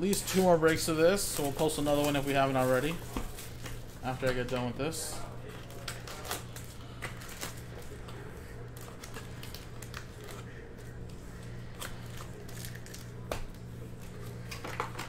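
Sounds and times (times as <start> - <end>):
foil packs rustling and clicking: 0.0 - 11.0
steady low hum: 0.0 - 15.0.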